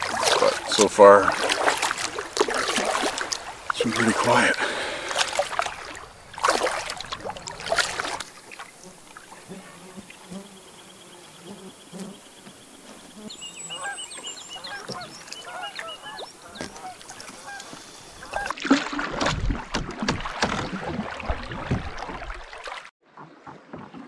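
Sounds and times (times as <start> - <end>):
canoe paddling splashes and knocks: 0.0 - 10.2, 13.4 - 24.0
waterfowl calling: 0.0 - 18.5.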